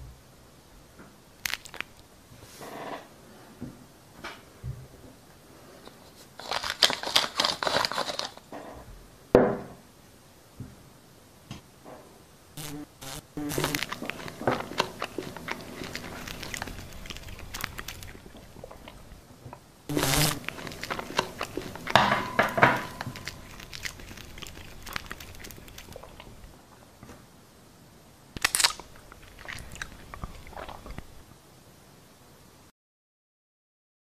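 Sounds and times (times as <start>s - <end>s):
crunching and chewing: 1.4s - 2.0s, 6.4s - 8.4s, 12.6s - 19.2s, 19.9s - 26.6s, 28.4s - 31.2s.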